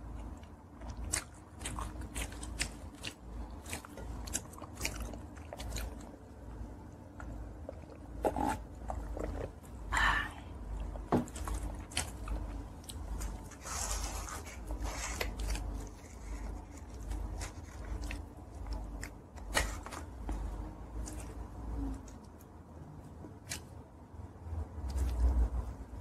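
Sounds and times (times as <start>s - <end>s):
chewing and mouth clicks: 0.0s - 9.6s.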